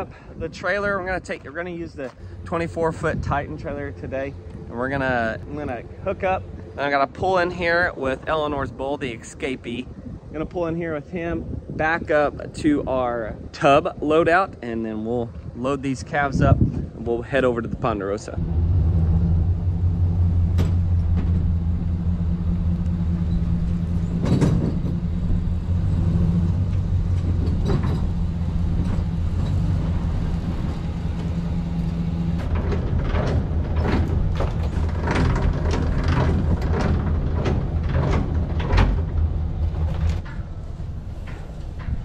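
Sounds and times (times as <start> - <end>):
pickup truck engine idling: 18.4 - 42.0.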